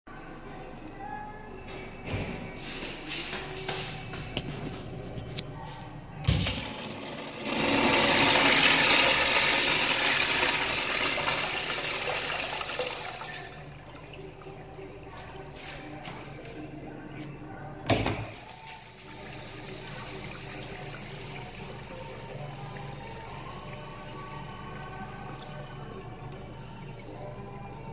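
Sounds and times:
water rushing into urinal: 0:06.3 - 0:14.8.

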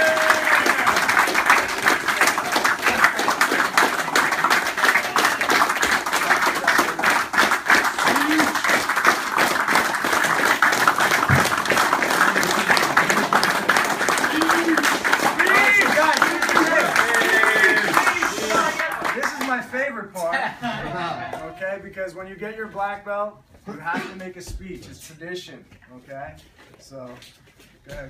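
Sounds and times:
crowd applauding: 0:00.0 - 0:19.6.

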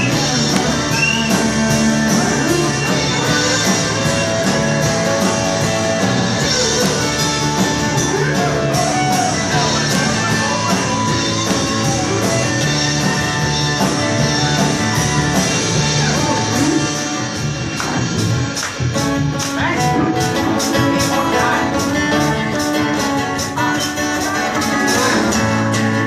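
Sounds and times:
live band playing: 0:00.0 - 0:26.0.

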